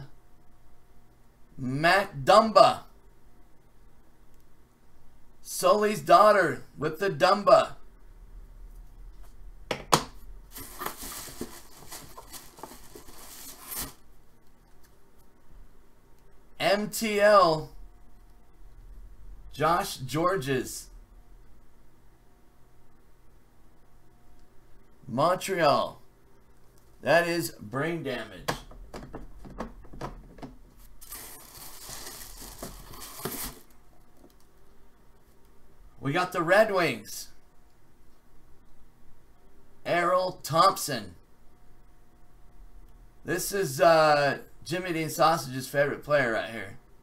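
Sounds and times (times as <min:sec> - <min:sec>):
paper rustling and crinkling: 0:10.5 - 0:14.0, 0:30.8 - 0:33.8.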